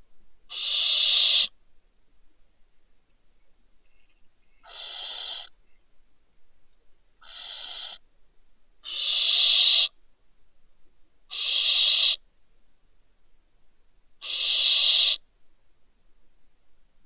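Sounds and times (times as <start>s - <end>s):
owl hissing screeches: 0.5s - 1.6s, 4.6s - 5.5s, 7.2s - 8.0s, 8.8s - 10.0s, 11.3s - 12.2s, 14.2s - 15.2s.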